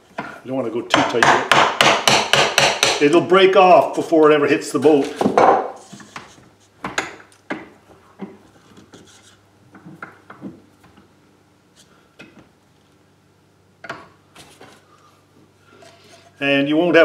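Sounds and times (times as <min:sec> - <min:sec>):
hammer tapping chisel into wood: 0:00.9 - 0:03.0
chisel blade scraping wood: 0:08.6 - 0:09.4, 0:15.7 - 0:16.4.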